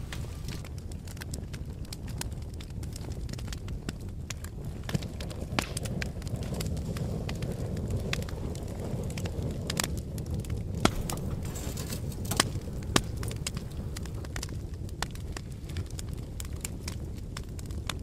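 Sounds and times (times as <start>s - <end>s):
fire pops: 0.0s - 18.0s
wood fire crackling: 0.0s - 18.0s
low rumble: 4.6s - 16.6s.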